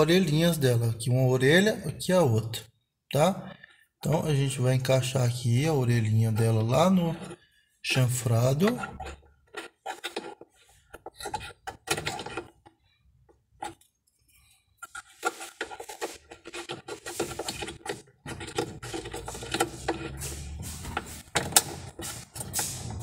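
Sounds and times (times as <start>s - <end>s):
plastic clicking and rubbing: 8.4s - 23.0s.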